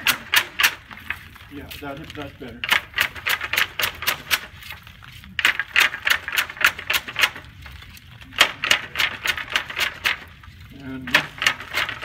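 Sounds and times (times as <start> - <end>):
wooden flax brake clacking: 0.0 - 4.5, 5.4 - 7.5, 8.3 - 10.3, 11.0 - 12.0.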